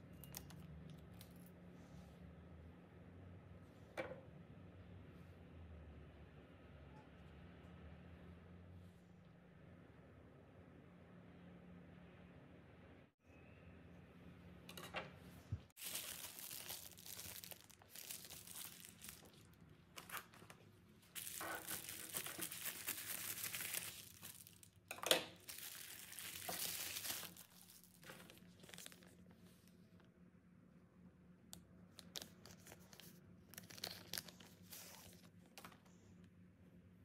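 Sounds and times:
plastic sleeve rustling: 15.7 - 24.8, 25.4 - 29.8, 32.0 - 35.7
padded mailer crinkling and tearing: 15.8 - 24.8, 25.4 - 29.6, 32.0 - 35.3.

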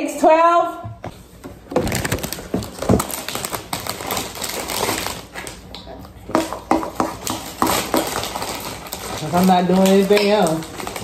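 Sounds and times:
packaging handled: 1.6 - 5.7, 7.2 - 11.0.

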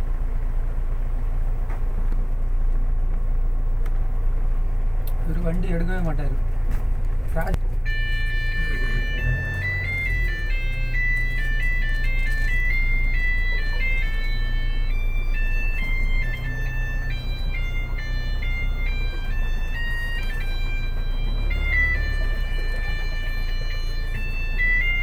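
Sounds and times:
car engine hum: 0.0 - 25.0
electronic beeping melody: 7.8 - 25.0.

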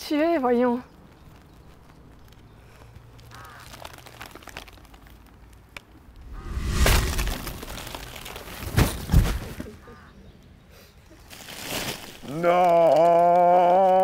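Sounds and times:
rustling: 6.2 - 9.7.

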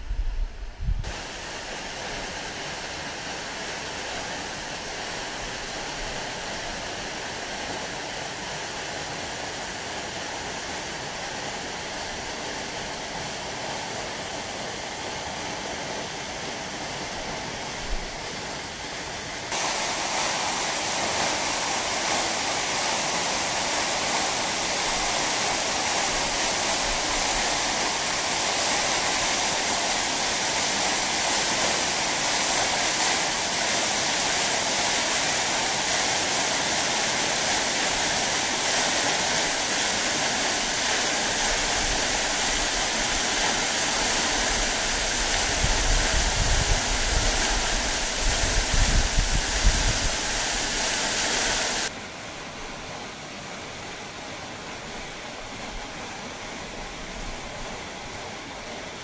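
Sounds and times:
waterfall roaring: 1.1 - 59.0.

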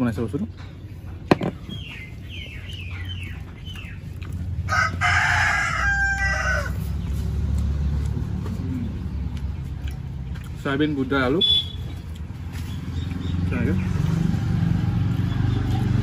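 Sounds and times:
rooster crowing: 4.7 - 6.8.

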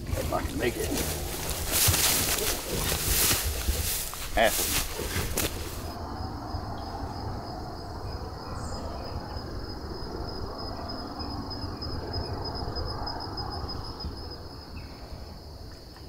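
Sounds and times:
low uneven rustling: 0.0 - 6.0
high-pitched insect trill: 0.0 - 16.0.

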